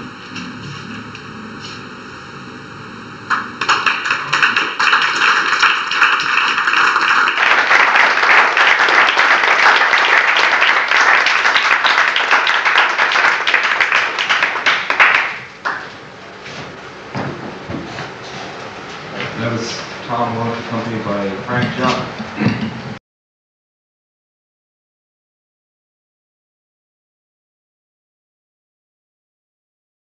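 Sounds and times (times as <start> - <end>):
audience applause: 3.3 - 15.9.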